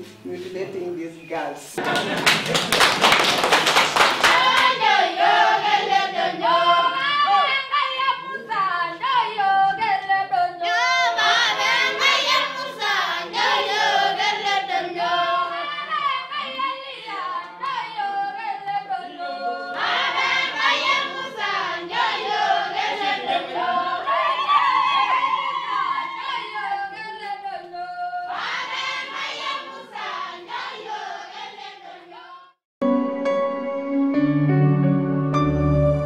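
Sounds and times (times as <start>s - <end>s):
women singing unaccompanied: 4.2s - 32.6s
instrumental music: 32.8s - 36.0s.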